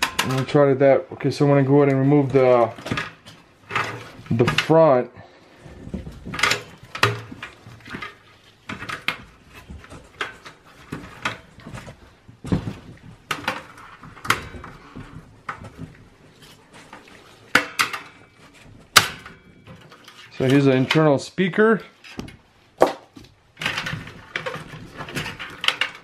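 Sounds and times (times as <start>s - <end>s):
clicks and knocks in computer case: 5.8s - 20.6s, 22.1s - 26.0s.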